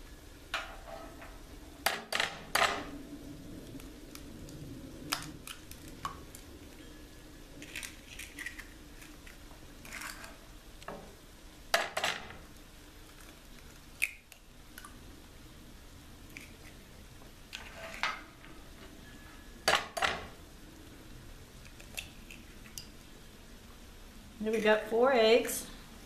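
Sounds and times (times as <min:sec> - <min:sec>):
eggshells cracking: 0:03.7 - 0:06.8, 0:07.6 - 0:10.4, 0:12.6 - 0:15.0, 0:21.6 - 0:23.0.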